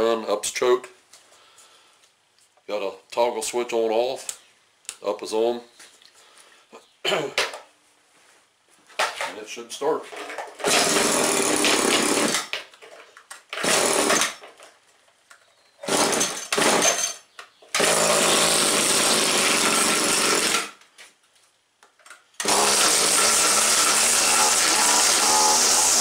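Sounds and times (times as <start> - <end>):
string trimmer engine starting: 10.1 - 12.6, 13.5 - 14.4, 15.8 - 17.0, 17.8 - 20.8, 22.4 - 26.0.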